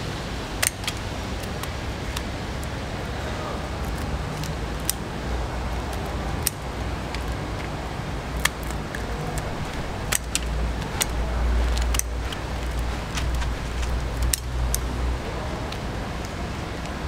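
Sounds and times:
shears snipping shells: 0.6s - 2.8s, 3.8s - 5.1s, 5.8s - 17.0s
shell cracks: 8.3s - 14.9s.

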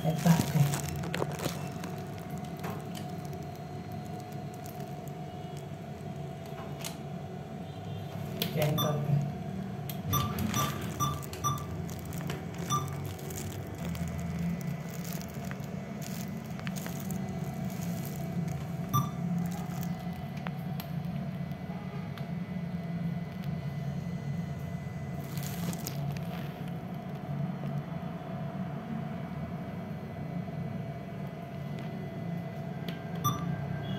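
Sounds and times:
steady low hum: 0.0s - 33.9s
atm button beeps: 8.6s - 9.2s, 10.0s - 11.8s, 12.6s - 13.0s, 18.8s - 19.7s, 33.2s - 33.5s.

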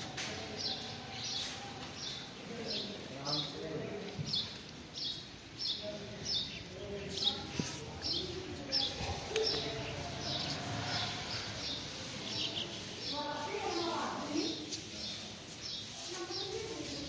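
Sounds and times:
faint murmur of voices: 0.0s - 17.0s.

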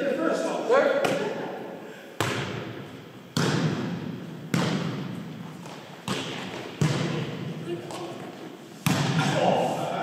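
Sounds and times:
volleyball smacks in gymnasium: 1.0s - 1.4s, 2.2s - 8.2s, 8.8s - 9.4s.

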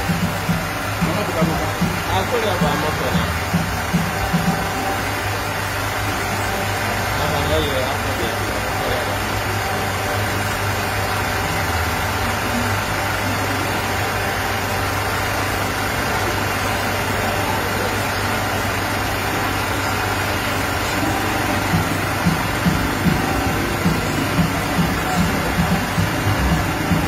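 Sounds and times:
constant low hum: 0.0s - 27.0s
vehicle engines idling: 0.0s - 27.0s.

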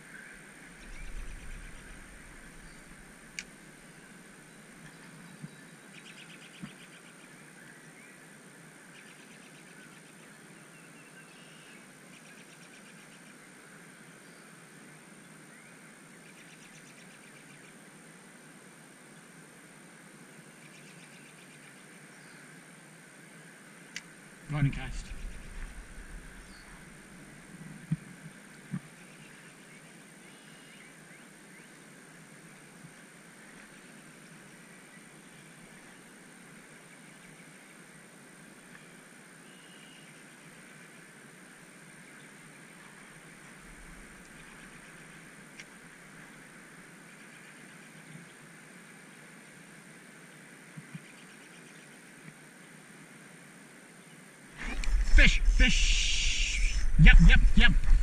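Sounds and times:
river hiss: 0.0s - 4.8s, 52.4s - 58.0s
small birds trilling: 24.5s - 27.4s
river current rushing: 54.6s - 58.0s.

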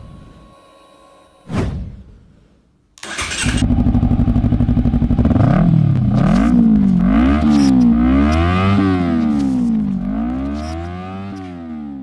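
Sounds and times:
motorcycle engine revving: 3.0s - 12.0s.

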